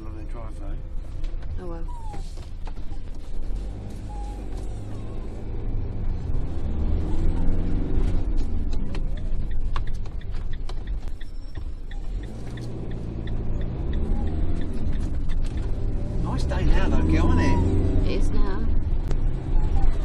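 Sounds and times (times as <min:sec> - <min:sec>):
van engine revving: 0:00.0 - 0:20.0
turn indicator ticking: 0:07.4 - 0:16.4.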